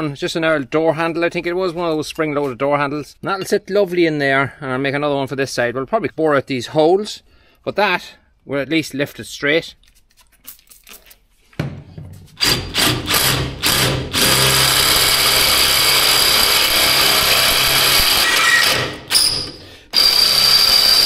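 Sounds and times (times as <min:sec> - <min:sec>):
electric drill boring metal: 0:12.4 - 0:21.0.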